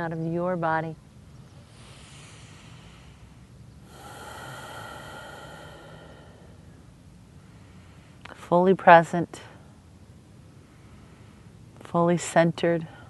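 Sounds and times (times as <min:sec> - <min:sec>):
person breathing: 0:01.7 - 0:06.8.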